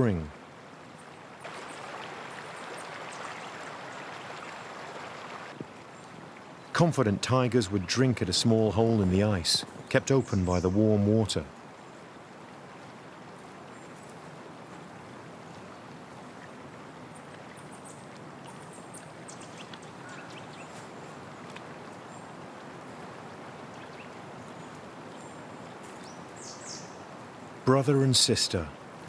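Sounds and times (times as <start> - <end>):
forest stream rushing: 0.0 - 29.0
faint high chirps and ticks: 15.5 - 22.3.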